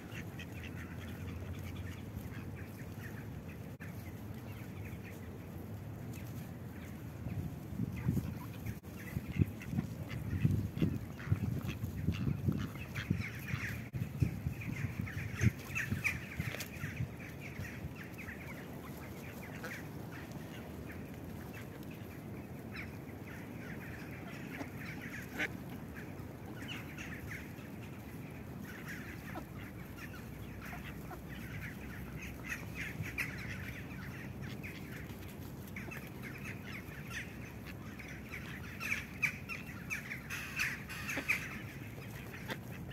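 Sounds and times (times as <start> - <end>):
low rumbling buffeting: 0.0 - 38.8
ducks quacking: 0.0 - 42.9.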